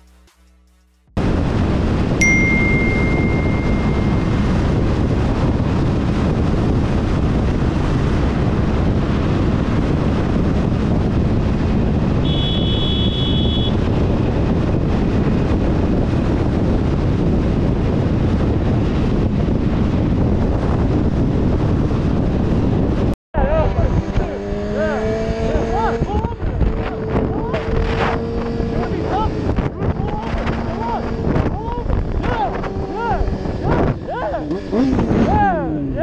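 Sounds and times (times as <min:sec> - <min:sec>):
motorcycle engine: 0:01.2 - 0:36.0
road noise: 0:01.2 - 0:36.0
wind buffeting microphone: 0:01.2 - 0:36.0
short high beep: 0:02.2 - 0:04.6, 0:12.2 - 0:13.7.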